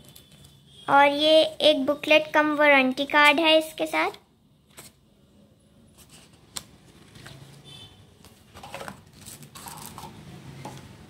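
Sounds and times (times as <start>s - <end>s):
paper and cardboard rustling: 5.9s - 7.6s, 8.3s - 10.1s.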